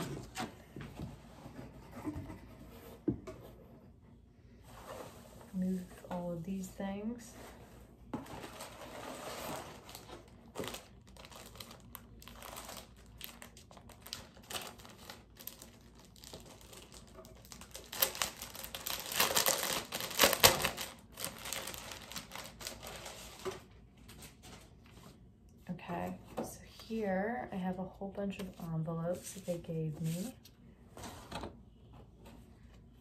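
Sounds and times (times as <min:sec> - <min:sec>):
plastic packaging crinkling: 0:08.5 - 0:23.6.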